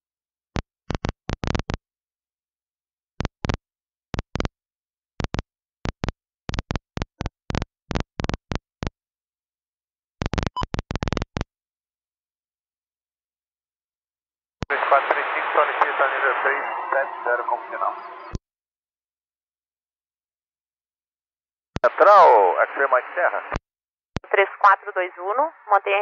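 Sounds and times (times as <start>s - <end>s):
radio static crackles: 14.7s - 18.4s, 21.8s - 23.6s, 24.2s - 26.0s.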